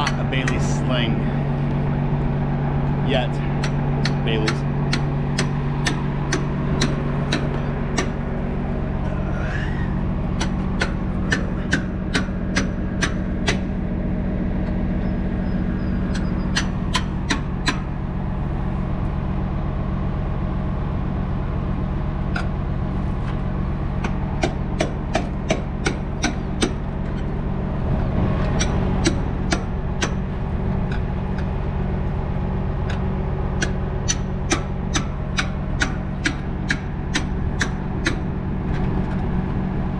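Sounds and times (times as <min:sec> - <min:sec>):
truck engine idling: 0:00.0 - 0:39.9
sharp metallic clicks: 0:03.6 - 0:08.3, 0:10.4 - 0:13.7, 0:24.0 - 0:27.3, 0:33.6 - 0:38.9.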